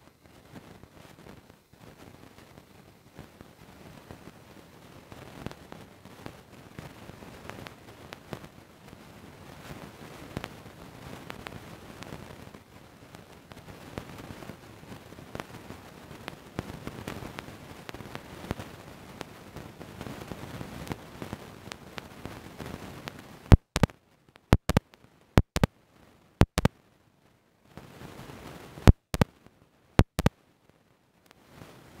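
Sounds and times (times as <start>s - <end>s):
faint clicks: 23.0s - 25.7s, 26.4s - 26.7s, 30.0s - 30.3s
sharp glitch pops: 23.5s - 23.9s, 24.5s - 24.8s, 25.4s - 25.7s, 26.4s - 26.7s, 28.9s - 29.3s, 30.0s - 30.3s.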